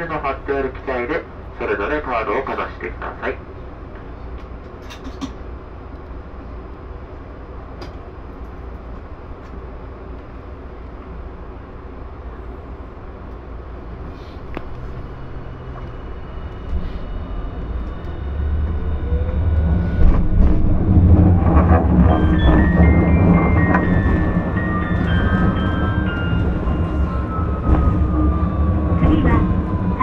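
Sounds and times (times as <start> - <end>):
streetcar low hum: 0.0 - 30.0
wheels rumbling: 13.8 - 30.0.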